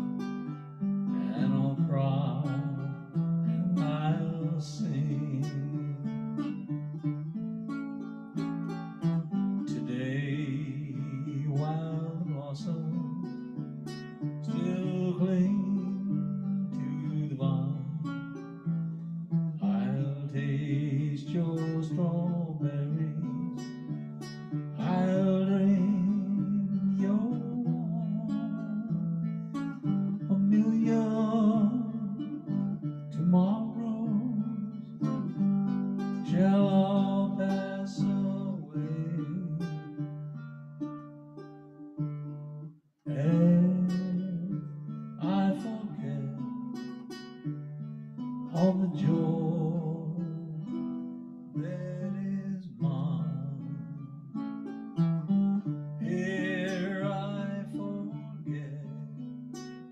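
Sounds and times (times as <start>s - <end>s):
ukulele: 0.0s - 59.9s
man singing: 1.1s - 6.5s, 9.6s - 13.5s, 14.4s - 18.8s, 19.6s - 23.9s, 24.6s - 40.1s, 43.1s - 46.6s, 48.5s - 50.8s, 51.5s - 54.2s, 55.6s - 59.4s.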